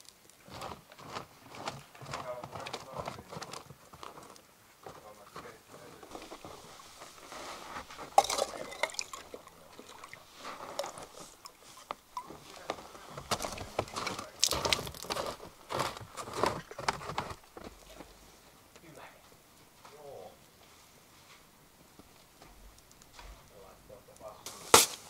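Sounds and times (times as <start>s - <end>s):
handling crunches and clinks: 1.0s - 18.1s.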